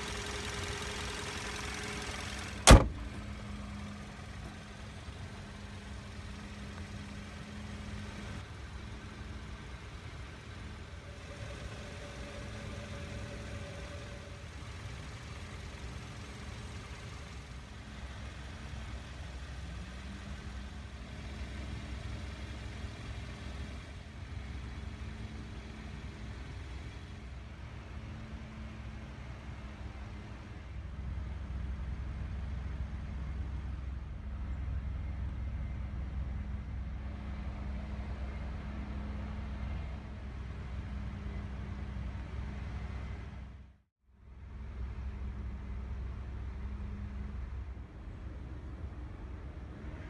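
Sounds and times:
car engine humming: 0:00.0 - 0:31.7.

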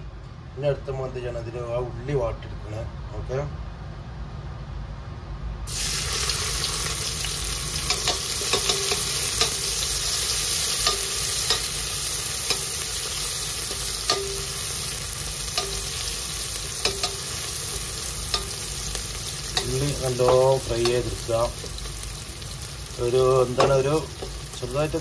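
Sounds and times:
onions sizzling in a pot: 0:05.7 - 0:25.0.

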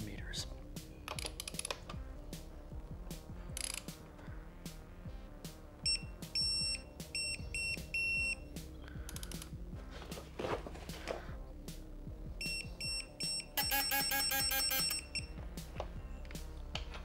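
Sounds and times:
background music with beat: 0:00.0 - 0:17.0
high electronic beeps: 0:05.9 - 0:08.5, 0:12.4 - 0:15.4.

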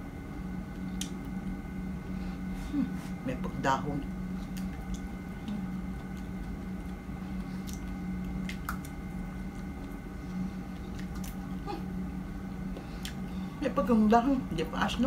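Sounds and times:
steady low hum: 0:00.0 - 0:15.0
person chewing strawberry: 0:04.4 - 0:11.9, 0:12.7 - 0:13.3.

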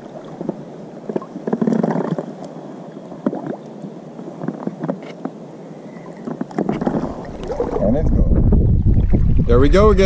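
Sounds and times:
water splashing and gurgling: 0:00.0 - 0:02.6, 0:06.2 - 0:10.0.

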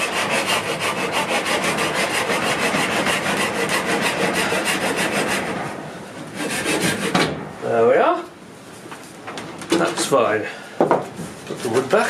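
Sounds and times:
saw cutting wood: 0:00.0 - 0:07.3.

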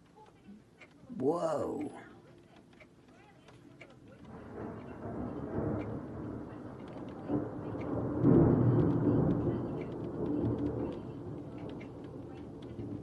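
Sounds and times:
thunder rumbling: 0:04.3 - 0:13.0.

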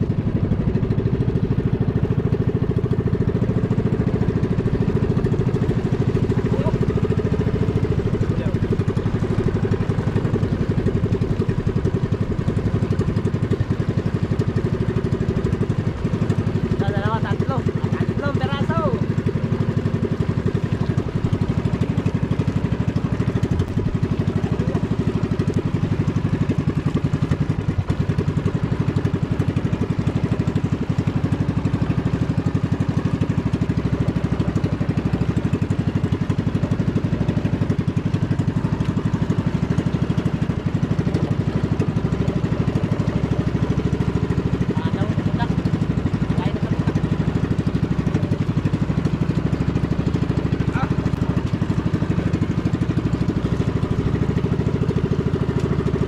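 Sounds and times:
small boat engine running: 0:00.0 - 0:56.0.

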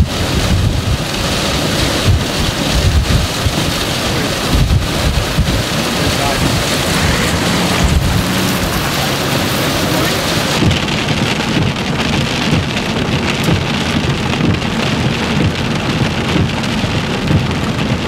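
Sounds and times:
heavy rain pelting a vehicle: 0:00.0 - 0:18.0
low rumble: 0:03.0 - 0:11.7.

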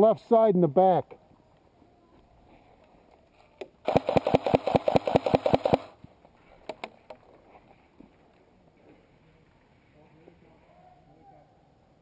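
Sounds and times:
airsoft rifle firing burst: 0:03.8 - 0:06.0.

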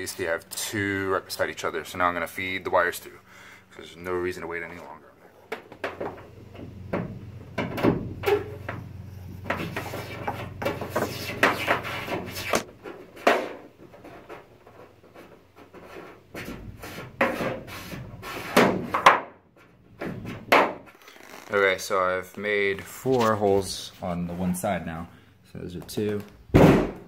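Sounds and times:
cable rubbing and scraping on metal: 0:08.2 - 0:12.7.

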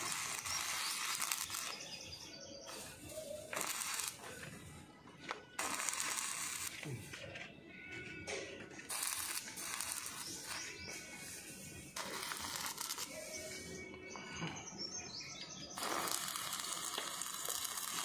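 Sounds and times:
welding arc crackling: 0:00.0 - 0:02.0, 0:02.7 - 0:04.4, 0:05.6 - 0:06.8, 0:08.9 - 0:13.4, 0:15.8 - 0:18.0.

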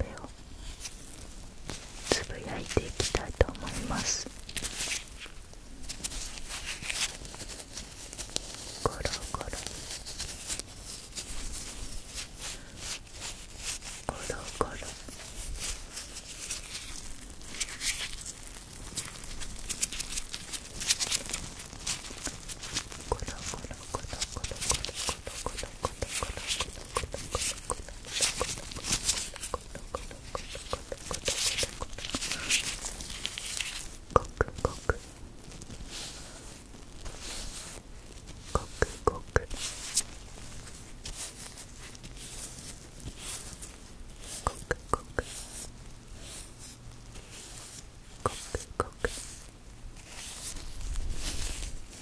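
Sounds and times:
rubber gloves rubbing and squeaking: 0:00.0 - 0:52.0
rubber glove clicks: 0:19.7 - 0:35.1.

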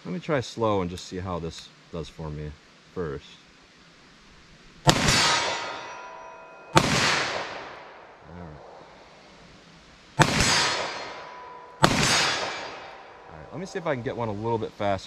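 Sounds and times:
pistol shots with echo: 0:04.8 - 0:08.1, 0:10.2 - 0:13.8
steel target ringing ping: 0:04.9 - 0:08.2, 0:10.2 - 0:14.9.

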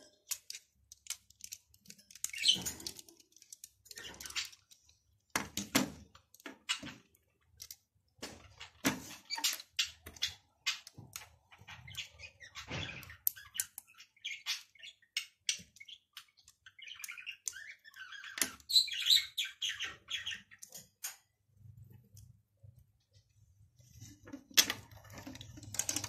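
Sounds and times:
plastic bricks clicking: 0:00.1 - 0:06.5, 0:24.5 - 0:26.0
high chirping sounds: 0:09.2 - 0:21.7.

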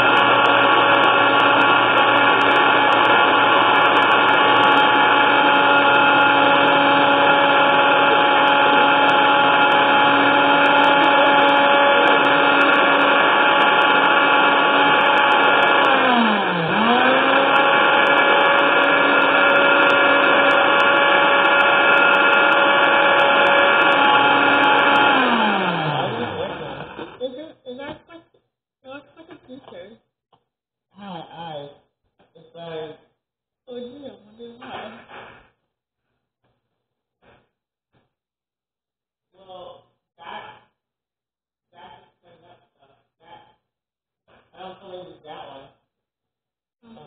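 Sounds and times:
blender motor running: 0:00.0 - 0:27.3.

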